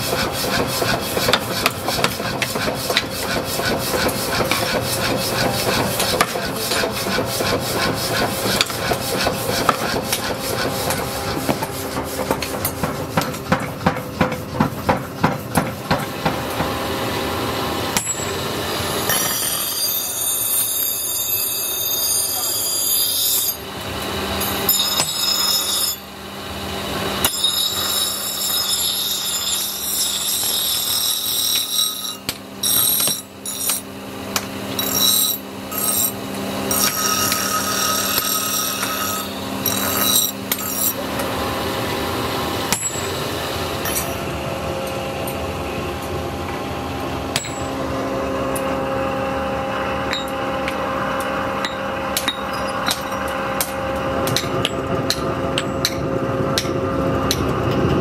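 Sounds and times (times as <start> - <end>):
grinding wheel scraping steel: 0.0 - 13.2, 17.9 - 23.6, 24.2 - 26.1, 26.9 - 33.9, 34.6 - 42.2.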